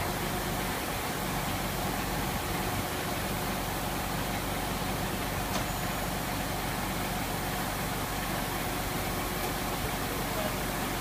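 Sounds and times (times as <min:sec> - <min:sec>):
heavy vehicle engine running: 0:00.0 - 0:11.0.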